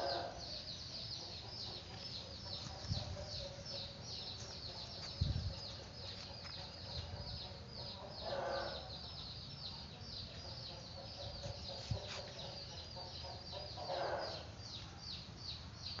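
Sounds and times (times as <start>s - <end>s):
chicken calls: 8.0s - 8.9s, 11.1s - 14.5s.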